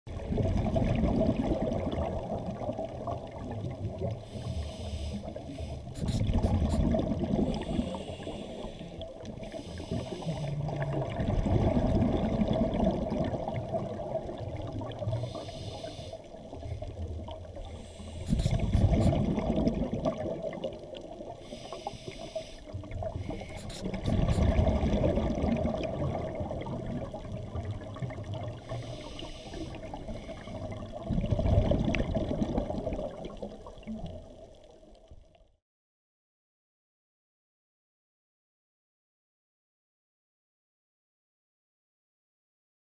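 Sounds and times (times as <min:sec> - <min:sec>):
rush of bubbles: 0:00.1 - 0:04.4, 0:05.3 - 0:15.6, 0:16.3 - 0:21.5, 0:22.8 - 0:28.8, 0:29.5 - 0:34.4
scuba diver breathing through regulator: 0:04.2 - 0:10.7, 0:15.2 - 0:16.4, 0:17.6 - 0:19.3, 0:21.4 - 0:24.6, 0:28.6 - 0:30.8.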